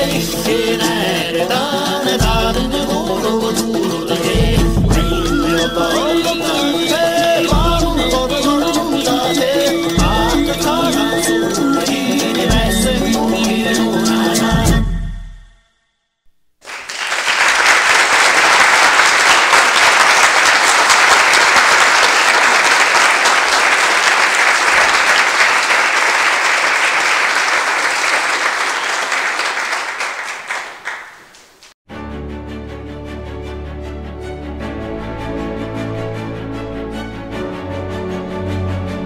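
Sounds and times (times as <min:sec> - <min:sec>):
audience applauding: 0:16.6 - 0:31.8.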